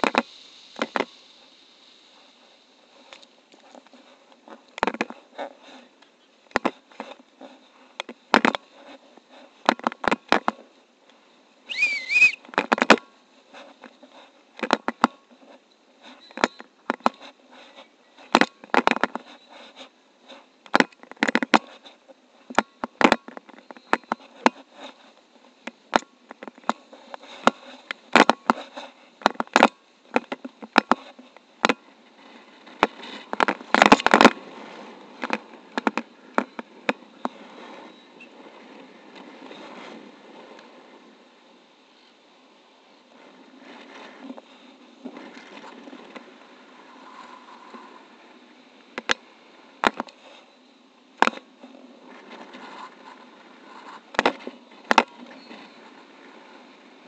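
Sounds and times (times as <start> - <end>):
brief warbling whistle: 11.7 - 12.4.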